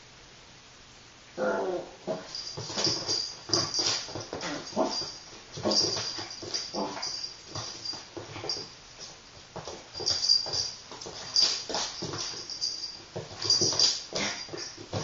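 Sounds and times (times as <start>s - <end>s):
dog play-growling: 1.4s - 8.6s, 13.4s - 15.0s
scuffling on a wooden floor: 2.2s - 15.0s.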